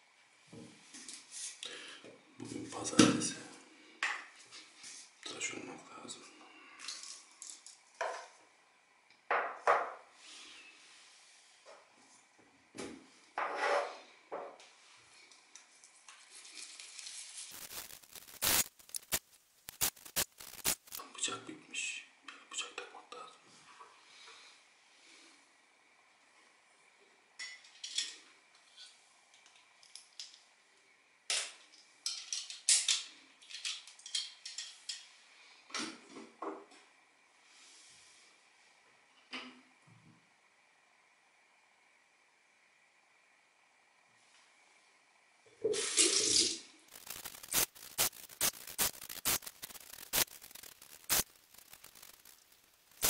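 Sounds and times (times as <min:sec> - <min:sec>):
small objects clicking and rattling: 0:06.8 - 0:08.0, 0:16.4 - 0:21.0, 0:31.3 - 0:35.0, 0:45.8 - 0:53.0.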